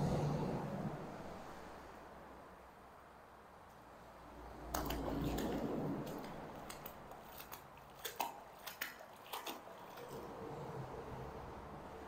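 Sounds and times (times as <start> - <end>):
wet rope clicking and squelching: 4.6 - 10.4
water splashing and dripping: 4.7 - 10.2.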